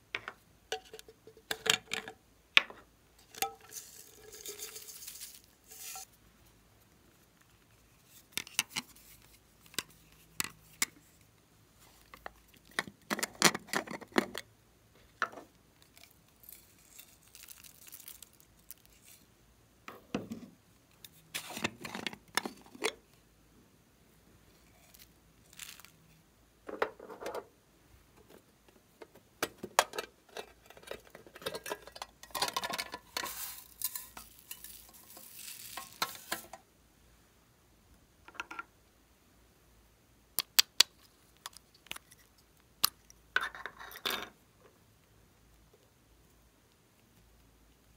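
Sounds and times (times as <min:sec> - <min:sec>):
small pieces rattling into glass dish: 0:03.3 - 0:06.1, 0:16.4 - 0:19.2, 0:25.5 - 0:25.9, 0:31.4 - 0:36.5.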